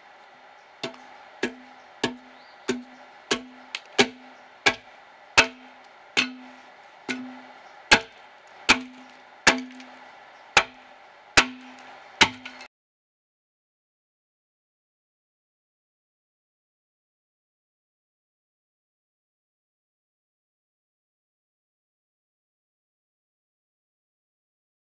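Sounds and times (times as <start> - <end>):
axe chopping into log: 0.8 - 4.8, 5.4 - 10.0, 10.6 - 10.8, 11.4 - 12.6.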